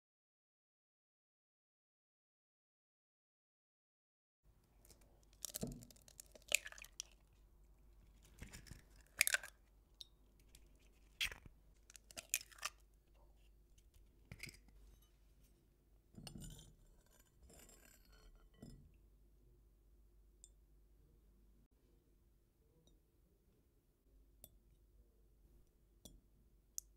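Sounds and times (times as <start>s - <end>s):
eggs cracking on glass bowl: 4.8s - 7.3s, 8.2s - 12.9s
metal spoon scraping glass: 16.2s - 18.8s.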